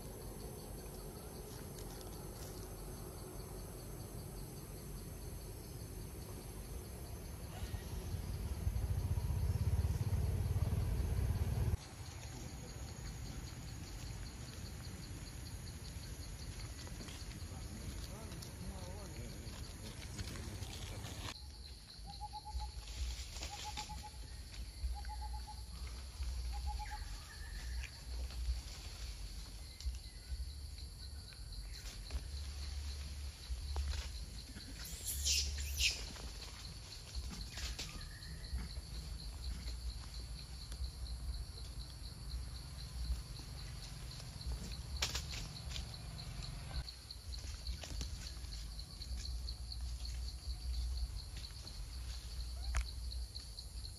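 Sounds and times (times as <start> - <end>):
low rumble: 6.6 - 11.8.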